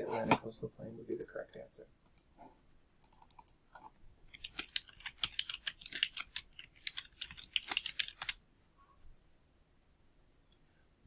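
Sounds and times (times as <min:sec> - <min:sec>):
computer keyboard typing: 0:03.0 - 0:03.6, 0:04.3 - 0:08.4.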